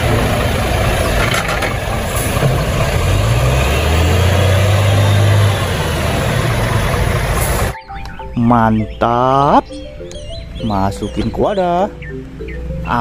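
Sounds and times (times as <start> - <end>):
truck diesel engine running: 0.0 - 7.8.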